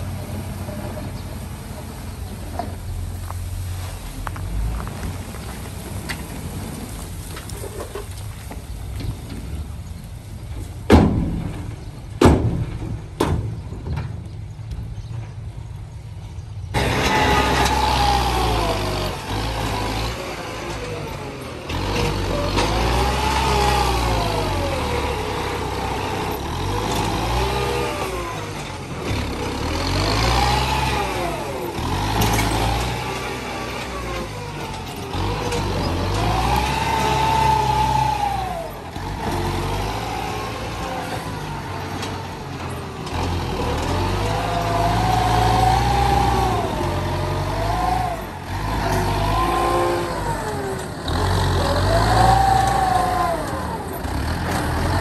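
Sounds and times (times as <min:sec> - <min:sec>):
tractor engine revving under load: 0:16.7 - 0:55.0.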